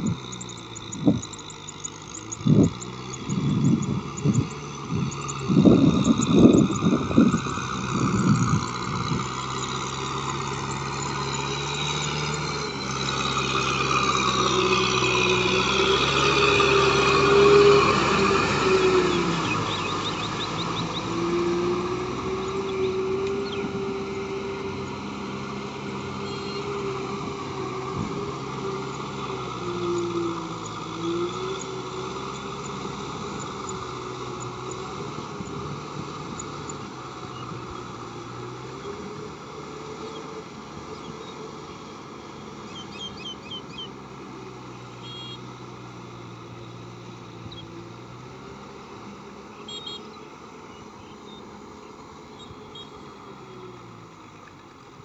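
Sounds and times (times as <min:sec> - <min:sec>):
bird chirps: 0:00.0 - 0:13.4, 0:18.5 - 0:24.3, 0:26.2 - 0:26.8, 0:42.7 - 0:44.0, 0:44.7 - 0:45.5, 0:49.5 - 0:51.4, 0:52.3 - 0:53.2
tractor diesel engine running: 0:00.0 - 0:55.0.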